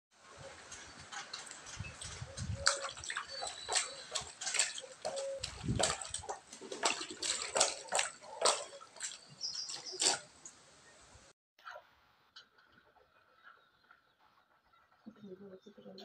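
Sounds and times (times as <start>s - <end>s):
water splashing in a tub: 0.8s - 10.6s.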